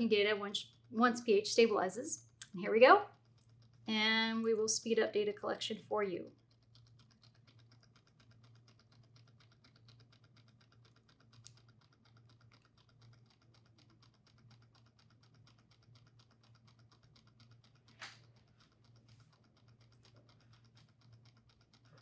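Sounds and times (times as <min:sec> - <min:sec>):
faint rapid ticking: 0:00.0 - 0:22.0
low steady hum: 0:00.0 - 0:22.0
click: 0:06.3 - 0:22.0.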